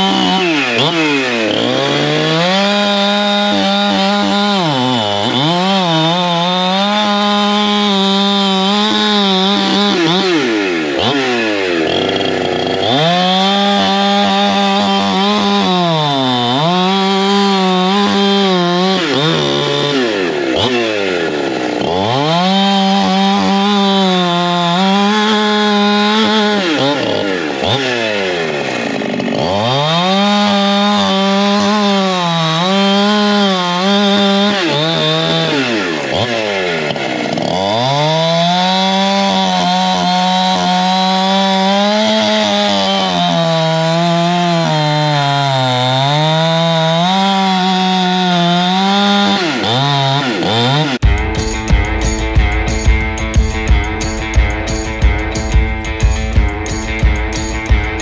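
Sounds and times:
chainsaw cutting log: 0:00.0 - 0:58.0.

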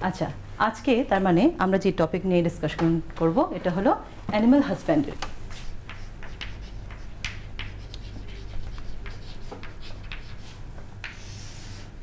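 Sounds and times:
low steady hum: 0:00.0 - 0:12.0
chalk scratching on a chalkboard: 0:05.5 - 0:11.9.

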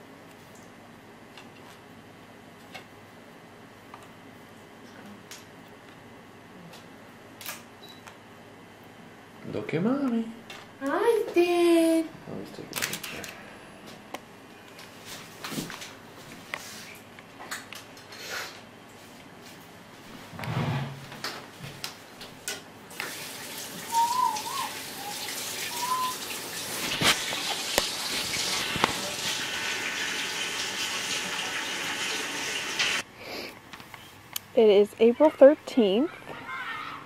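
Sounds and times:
tap water running into sink: 0:22.9 - 0:33.0.

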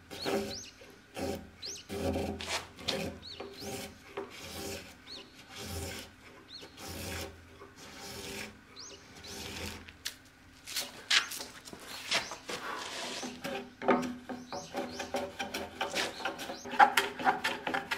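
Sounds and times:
birds chirping: 0:00.1 - 0:00.9, 0:01.6 - 0:02.0, 0:03.2 - 0:03.9, 0:06.4 - 0:06.8, 0:08.7 - 0:09.5, 0:11.2 - 0:13.4, 0:14.0 - 0:16.9
chisel scraping wood: 0:00.1 - 0:08.6, 0:09.2 - 0:09.9, 0:12.2 - 0:17.9.

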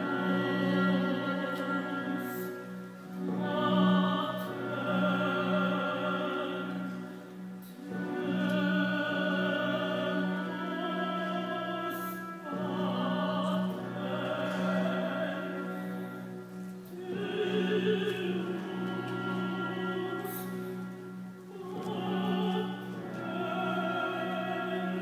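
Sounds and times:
operatic singing: 0:00.0 - 0:25.0
orchestral accompaniment: 0:00.0 - 0:25.0.

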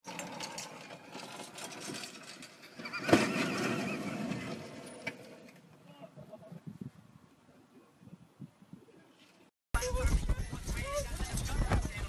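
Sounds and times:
golf cart crash: 0:00.1 - 0:05.6.

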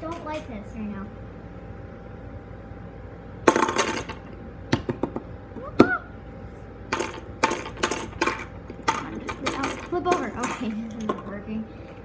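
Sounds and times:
fidget spinner rattling on wood: 0:00.0 - 0:00.6, 0:06.9 - 0:12.0.

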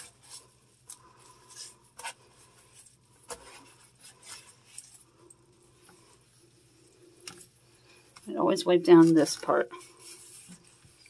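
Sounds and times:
washcloth scrubbing toilet: 0:00.0 - 0:11.0.

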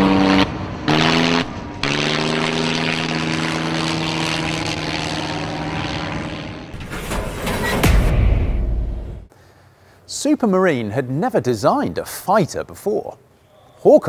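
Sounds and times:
biplane engine droning: 0:00.0 - 0:07.7.

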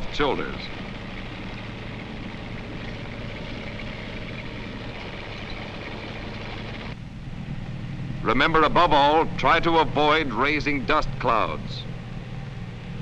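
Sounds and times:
tank engine and tracks: 0:00.0 - 0:13.0.

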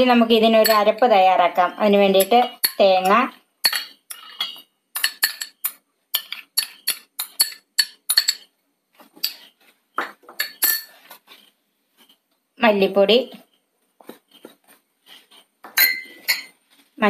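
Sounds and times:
metal spoon clinking on bowls: 0:00.5 - 0:01.1, 0:01.8 - 0:08.5, 0:09.2 - 0:11.1, 0:15.3 - 0:16.6.

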